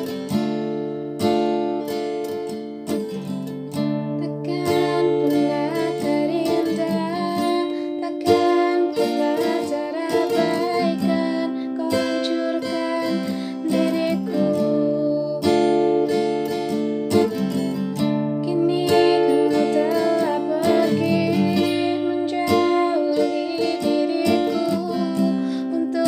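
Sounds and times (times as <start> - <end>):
strummed acoustic guitar: 0.0 - 26.0
woman singing: 4.0 - 16.8, 18.2 - 26.0.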